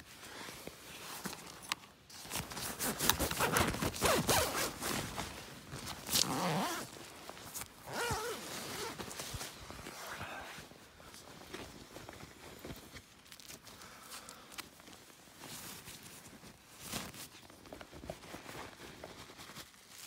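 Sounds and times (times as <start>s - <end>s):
fabric rustling: 0.3s - 13.8s
zipper being pulled: 2.4s - 5.2s, 5.9s - 7.0s, 7.7s - 9.2s.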